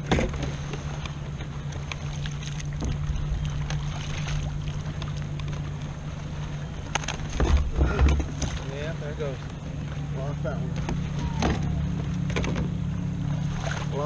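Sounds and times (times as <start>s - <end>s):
water splashing and dripping: 0.0s - 10.0s
steady low hum: 0.0s - 14.0s
wind and water noise: 0.0s - 14.0s.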